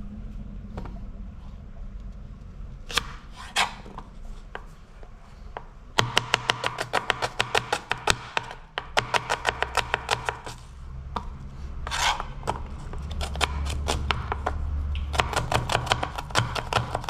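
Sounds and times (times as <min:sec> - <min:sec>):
knife chopping on cutting board: 0:02.9 - 0:03.8, 0:06.0 - 0:10.6, 0:11.9 - 0:17.0.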